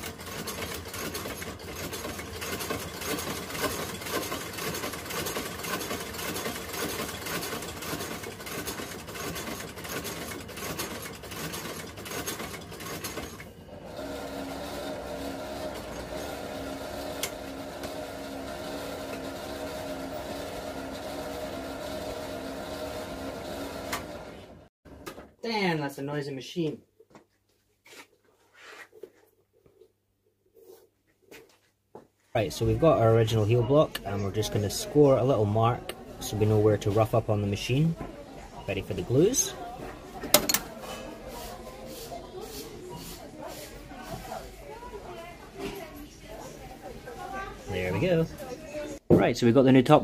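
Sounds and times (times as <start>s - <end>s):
stitching machine clattering: 0.0s - 24.7s, 40.2s - 40.8s.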